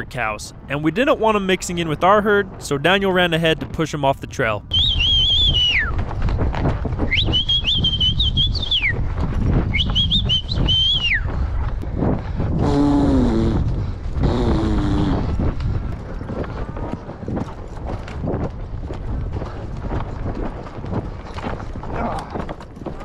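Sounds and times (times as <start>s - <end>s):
galloping hooves: 0.0s - 23.0s
wind on microphone: 4.6s - 23.0s
person whistling: 4.7s - 6.0s, 7.1s - 9.0s, 9.7s - 11.3s.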